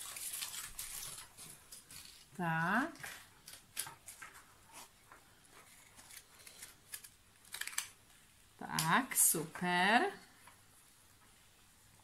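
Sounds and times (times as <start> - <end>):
paper rustling: 0.0 - 2.4, 3.0 - 7.9.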